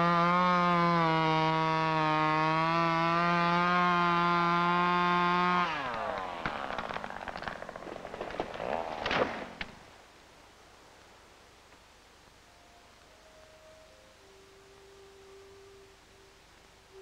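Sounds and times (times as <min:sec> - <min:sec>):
chainsaw running: 0:00.0 - 0:09.7
tree cracking and falling: 0:03.5 - 0:10.0.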